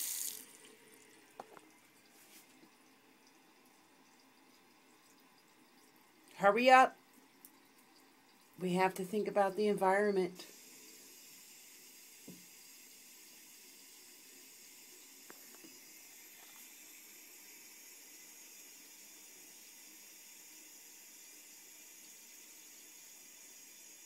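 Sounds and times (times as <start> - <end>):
tap water trickling into sink: 0.0 - 6.4, 12.2 - 12.6, 15.0 - 16.8.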